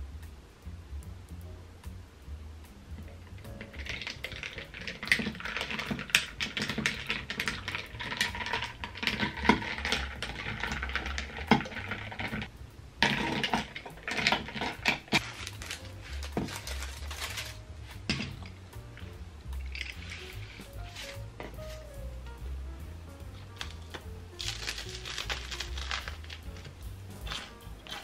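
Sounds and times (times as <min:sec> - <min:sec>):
spoon stirring ice in glass: 0:03.5 - 0:17.5
paper wrapping crinkling: 0:03.5 - 0:18.6, 0:19.6 - 0:22.0, 0:23.3 - 0:28.0.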